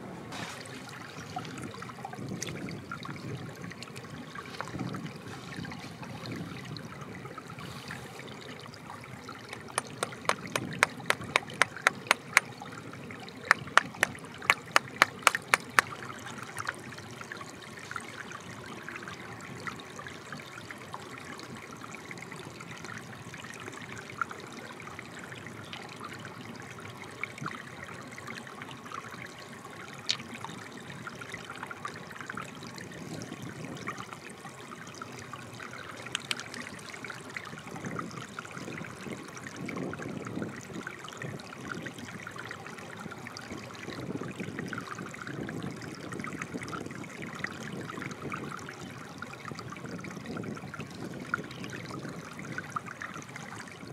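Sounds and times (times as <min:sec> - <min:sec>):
stream trickling over rocks: 0:00.0 - 0:53.9
sharp taps on stone: 0:09.6 - 0:12.5, 0:13.5 - 0:15.9.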